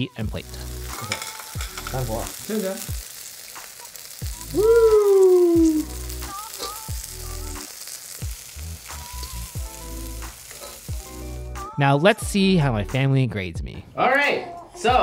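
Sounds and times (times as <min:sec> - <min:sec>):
chicken wings sizzling in a wok: 0:00.0 - 0:11.8
background music: 0:00.0 - 0:15.0
metal tongs clicking on pan: 0:01.0 - 0:02.0.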